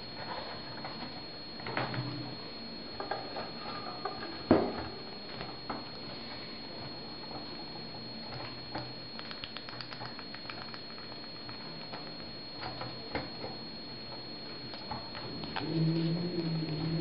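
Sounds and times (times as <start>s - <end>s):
beak tapping on spoon: 9.2s - 11.5s.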